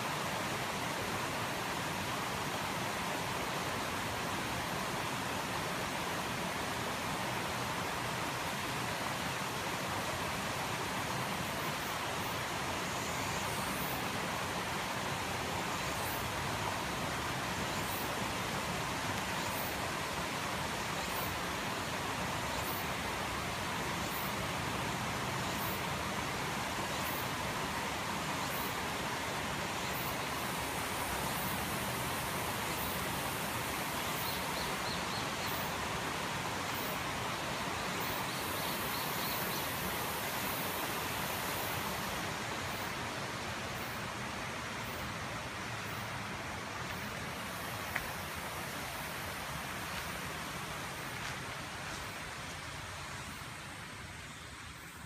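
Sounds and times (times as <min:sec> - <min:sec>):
stream rushing over rock: 0:00.0 - 0:55.0
faint high ticks: 0:47.8 - 0:48.2.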